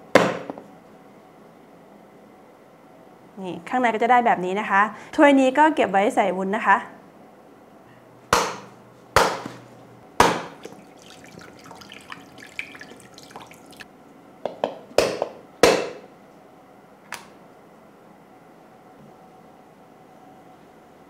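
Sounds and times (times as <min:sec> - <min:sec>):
water dripping into bowl: 0:10.4 - 0:13.9.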